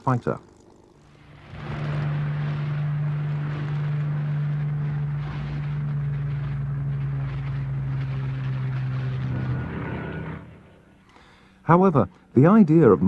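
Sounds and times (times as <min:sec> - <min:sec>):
propeller plane engine drone: 0:00.0 - 0:11.6.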